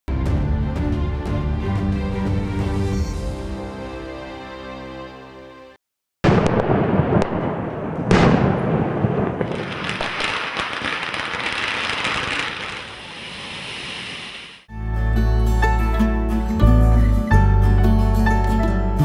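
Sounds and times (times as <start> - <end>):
firecracker bangs: 6.2 - 14.7
hissing crackle of sparks: 9.4 - 14.7.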